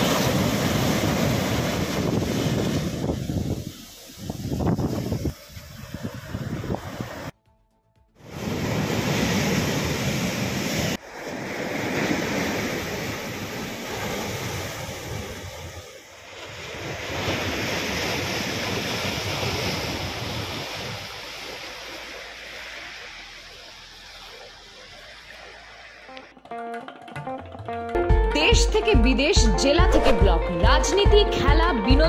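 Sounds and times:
rough surf breaking ashore: 0:00.0 - 0:07.4, 0:08.2 - 0:26.3.

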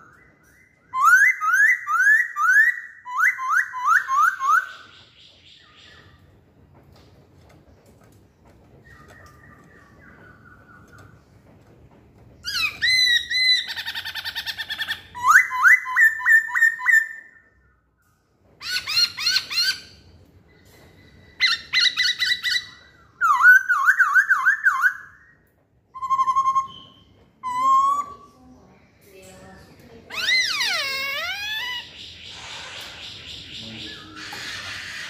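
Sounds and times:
bird whistling song: 0:00.0 - 0:06.2, 0:08.8 - 0:11.3, 0:12.4 - 0:17.9, 0:18.6 - 0:20.0, 0:20.6 - 0:28.4, 0:30.0 - 0:35.0.

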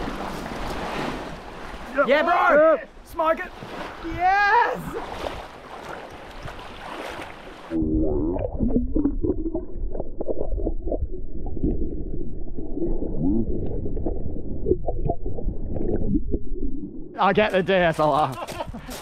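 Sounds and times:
water sloshing underwater: 0:04.8 - 0:17.2.

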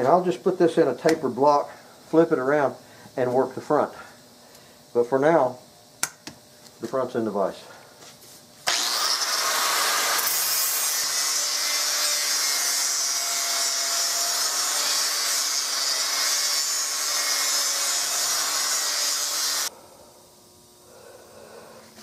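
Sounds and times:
angle grinder grinding wood: 0:08.7 - 0:19.7.

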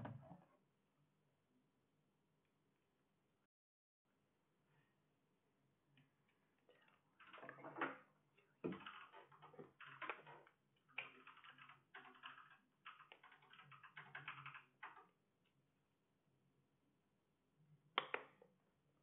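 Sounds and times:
computer keyboard typing: 0:08.7 - 0:15.1.

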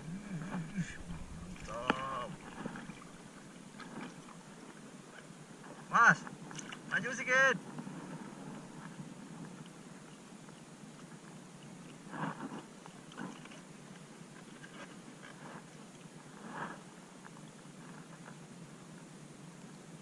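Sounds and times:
sea water sloshing: 0:00.0 - 0:07.0
soft splashes: 0:00.0 - 0:07.0.

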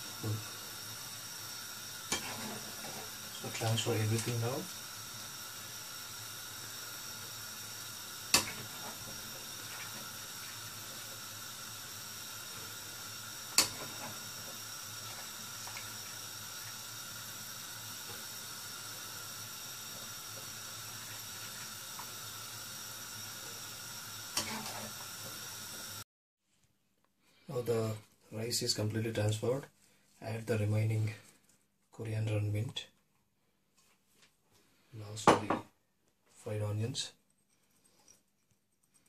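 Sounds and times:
water boiling in a pan: 0:00.0 - 0:26.0.

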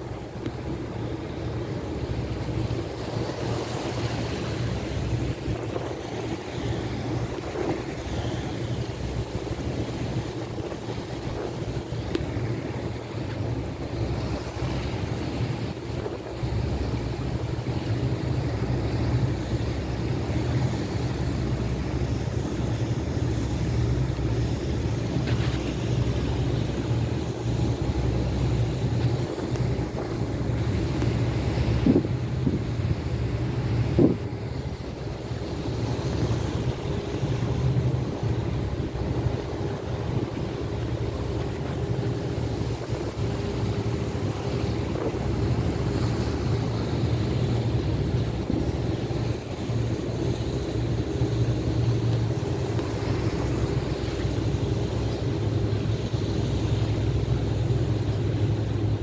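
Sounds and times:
boat engine droning: 0:00.0 - 0:59.0
water rushing: 0:00.0 - 0:59.0
wind on microphone: 0:25.2 - 0:59.0.

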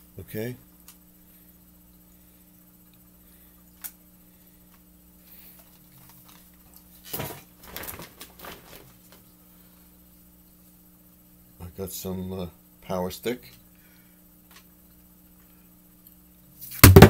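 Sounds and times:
faint steady hum: 0:00.0 - 0:17.0
crinkling and knocking: 0:06.0 - 0:09.2, 0:16.8 - 0:17.0
shopping bag rustling: 0:07.1 - 0:09.0.

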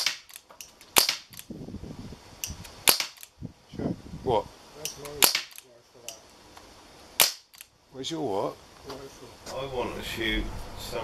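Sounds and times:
air gun shots: 0:00.0 - 0:01.5, 0:02.4 - 0:03.3, 0:04.9 - 0:05.6, 0:07.2 - 0:07.7.

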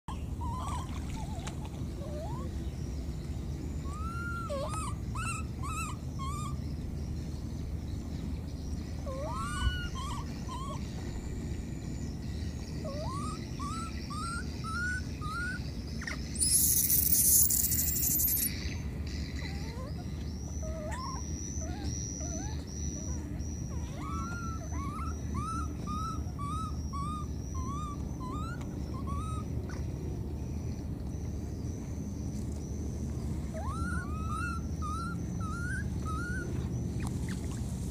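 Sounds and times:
baby monkey crying: 0:00.1 - 0:02.5, 0:03.8 - 0:06.7, 0:09.0 - 0:10.9, 0:12.8 - 0:18.5, 0:19.4 - 0:30.0, 0:33.5 - 0:37.7.

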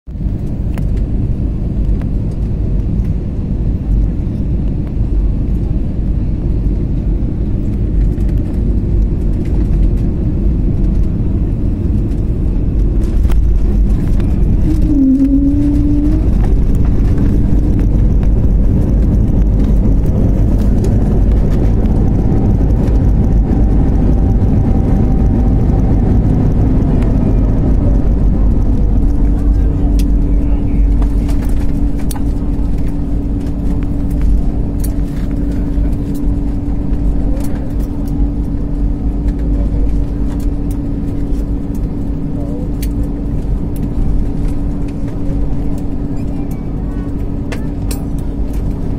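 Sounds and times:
jet engine and airflow roar: 0:00.1 - 0:48.9
whining tone: 0:11.4 - 0:39.3.

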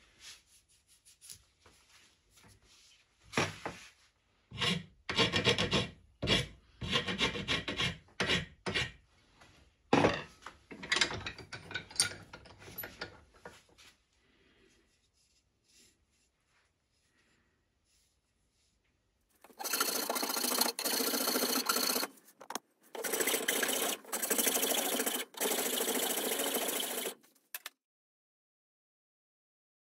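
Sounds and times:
hand file rasping on wood: 0:04.6 - 0:09.0, 0:19.5 - 0:27.2.

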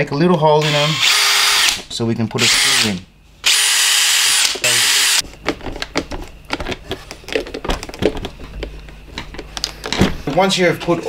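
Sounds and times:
power drill running: 0:00.6 - 0:01.8, 0:02.4 - 0:05.2.

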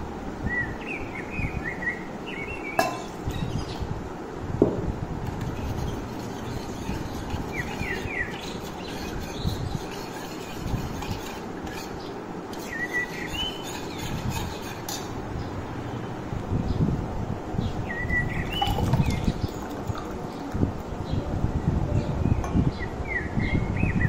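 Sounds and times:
ladle stirring in a metal pot: 0:05.2 - 0:15.2, 0:18.4 - 0:20.9.

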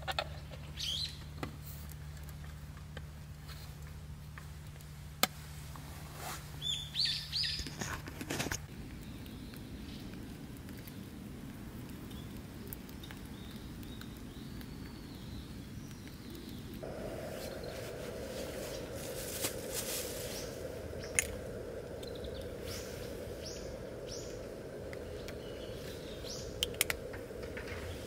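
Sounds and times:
birds chirping: 0:00.2 - 0:01.3, 0:06.6 - 0:07.7, 0:13.0 - 0:28.0
gas stove burner rumble: 0:16.7 - 0:28.0.

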